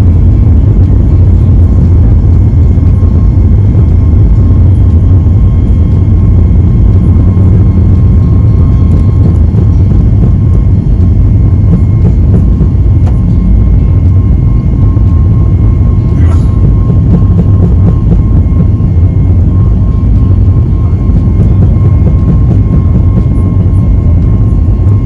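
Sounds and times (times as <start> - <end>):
jet engines at takeoff power: 0.0 - 25.0
wheels rumbling on runway: 0.0 - 25.0.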